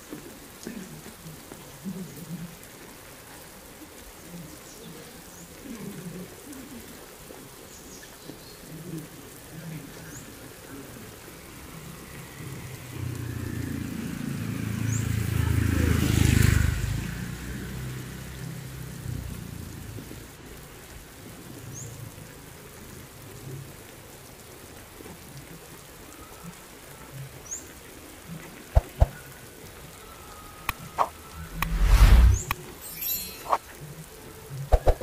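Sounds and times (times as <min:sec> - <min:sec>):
rain on wet road: 0:00.0 - 0:31.6, 0:33.5 - 0:35.0
motorbike passing: 0:11.7 - 0:19.6, 0:30.8 - 0:33.6.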